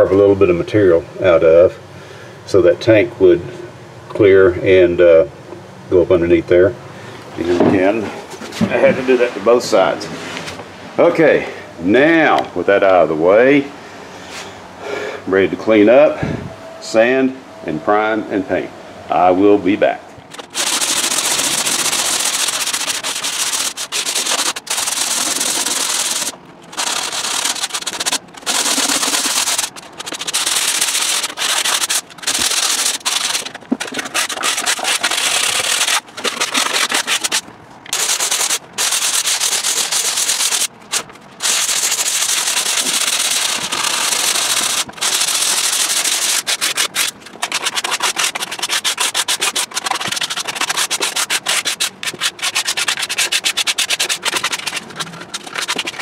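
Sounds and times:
hand sanding with sandpaper: 20.3s - 56.0s.

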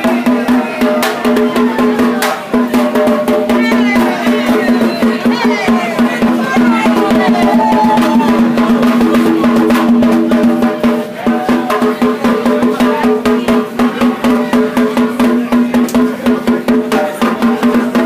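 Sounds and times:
loud dance music: 3.4s - 11.4s.

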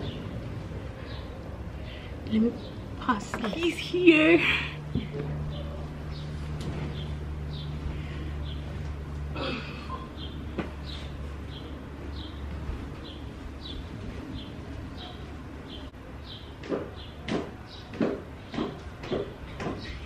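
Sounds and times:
sharp knocks and clatters: 16.6s - 19.9s.

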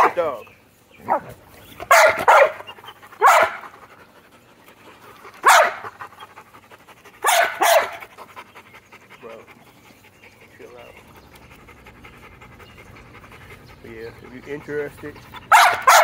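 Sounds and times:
dog barking: 0.0s - 0.2s, 1.1s - 1.3s, 1.9s - 3.7s, 5.4s - 6.0s, 7.2s - 8.0s, 15.5s - 16.0s.

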